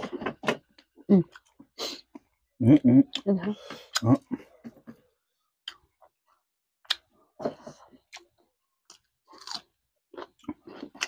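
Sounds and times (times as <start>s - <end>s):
wet chewing and lip-smacking: 5.6s - 6.2s, 6.8s - 7.1s.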